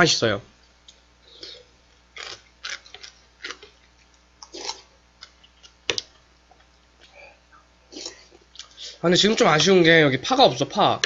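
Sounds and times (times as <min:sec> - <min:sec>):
slurping soup: 0:04.4 - 0:04.8.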